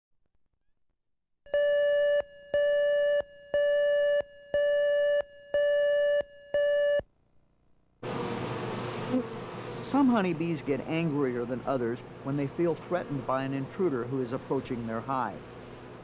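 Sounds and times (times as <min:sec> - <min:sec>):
countdown beeps: 0:01.5 - 0:07.0.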